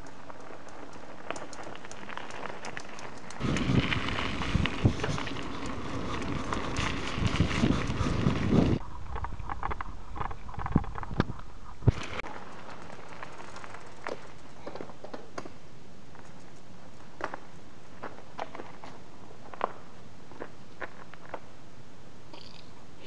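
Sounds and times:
small crunches and clicks: 0.0s - 3.4s
faint ticks on gravel: 0.0s - 21.5s
bike tyre rumble on gravel: 0.0s - 21.8s
steady low hiss: 0.0s - 23.0s
wind: 0.0s - 23.0s.

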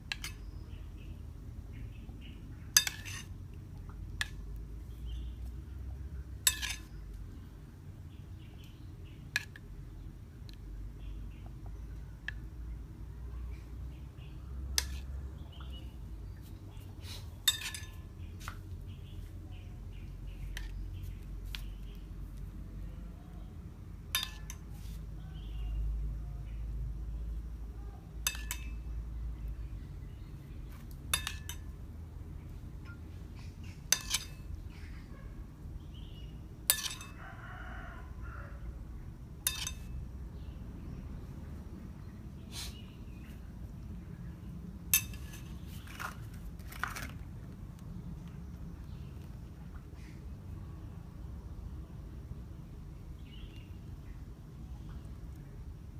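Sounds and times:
utensils clinking against dishes: 17.4s - 18.1s, 24.2s - 24.7s, 28.2s - 28.8s, 33.9s - 34.5s, 36.7s - 37.2s, 39.4s - 39.9s
rooster crowing: 37.1s - 38.8s.

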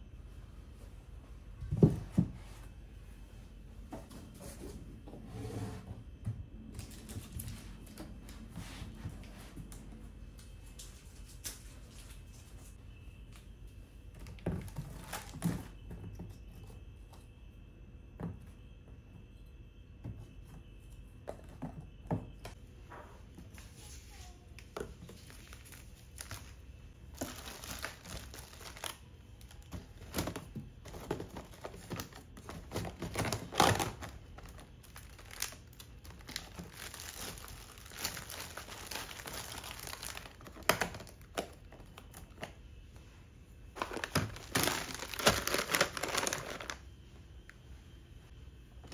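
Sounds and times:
plastic packaging crinkling: 25.0s - 42.5s, 43.8s - 46.8s.

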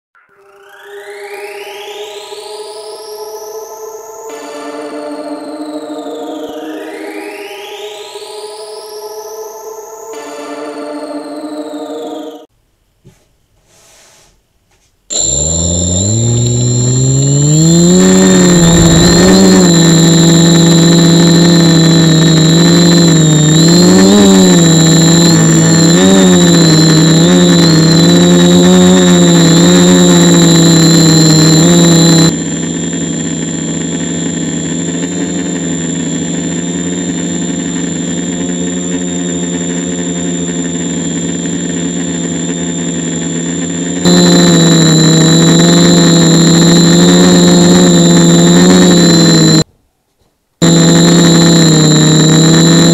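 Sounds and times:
quadcopter propellers humming: 15.1s - 49.7s, 50.6s - 52.9s
thin high whine: 15.1s - 49.7s, 50.6s - 52.9s.

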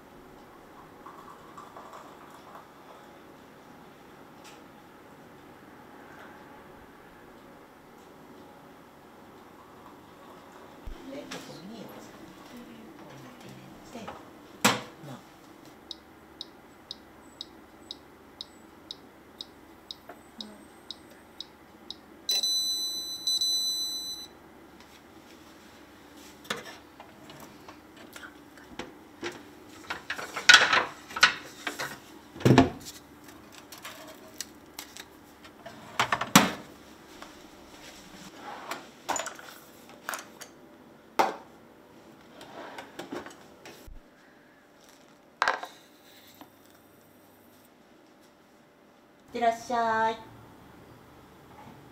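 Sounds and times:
timer ticking: 15.9s - 22.0s
electronic beep: 22.3s - 24.3s.

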